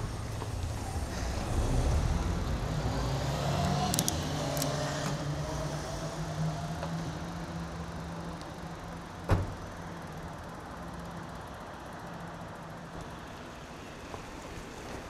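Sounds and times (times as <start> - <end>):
wind and road noise: 0.0 - 15.0
light rattling clicks: 3.9 - 4.8.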